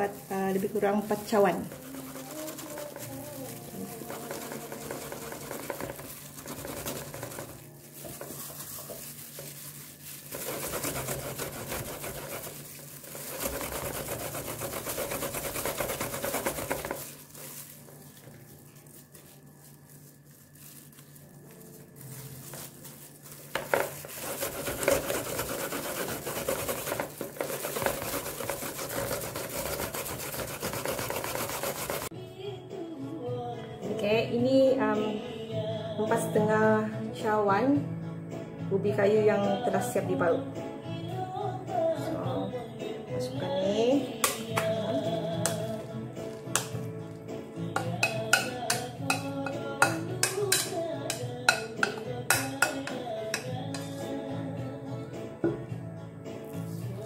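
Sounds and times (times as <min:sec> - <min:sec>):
grating by hand: 0:00.0 - 0:18.0, 0:22.0 - 0:32.1.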